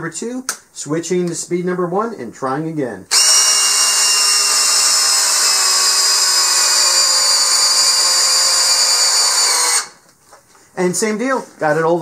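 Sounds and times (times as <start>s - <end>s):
drill motor whine: 3.1s - 10.0s.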